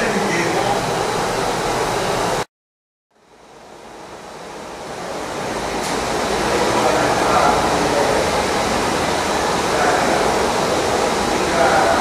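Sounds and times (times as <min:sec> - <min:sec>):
mixer motor running: 0:00.0 - 0:02.5.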